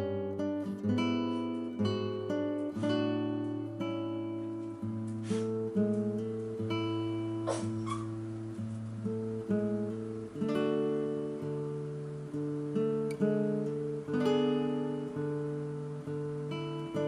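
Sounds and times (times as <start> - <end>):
acoustic guitar melody: 0.0 - 17.0.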